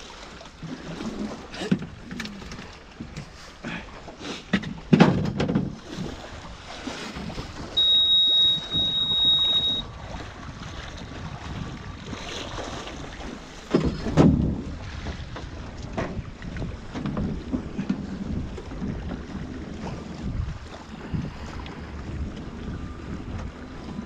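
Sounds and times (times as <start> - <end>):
wind buffeting microphone: 5.6 - 7.8, 8.4 - 24.0.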